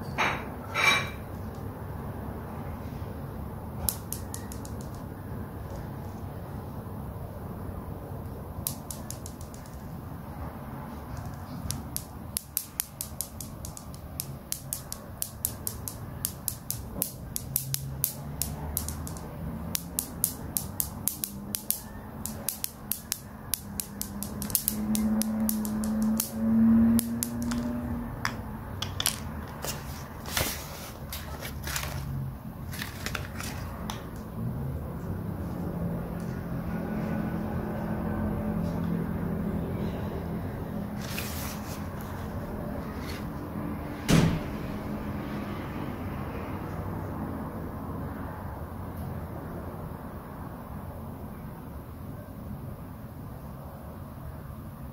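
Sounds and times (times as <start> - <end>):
plastic toy pieces clicking: 3.9 - 5.0, 8.6 - 9.8, 11.2 - 26.4, 27.0 - 27.8.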